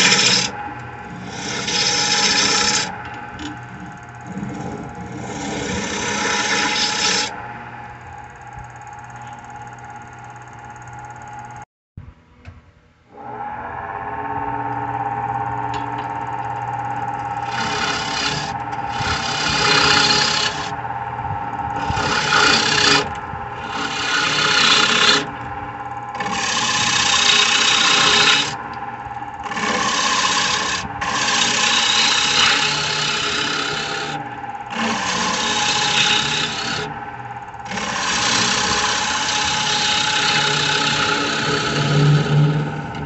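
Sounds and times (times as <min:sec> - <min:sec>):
turning tool scraping wood: 0:00.0 - 0:07.4, 0:16.4 - 0:20.8, 0:21.7 - 0:25.5, 0:26.1 - 0:28.6, 0:29.4 - 0:37.0, 0:37.6 - 0:43.0
lathe motor running: 0:00.0 - 0:11.6, 0:13.1 - 0:43.0.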